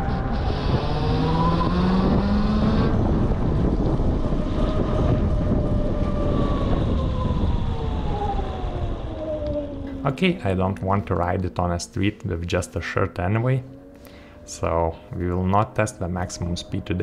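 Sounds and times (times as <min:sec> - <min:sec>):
electric motorcycle motor whining: 0:00.0 - 0:10.2
wind rushing over microphone: 0:00.0 - 0:13.5.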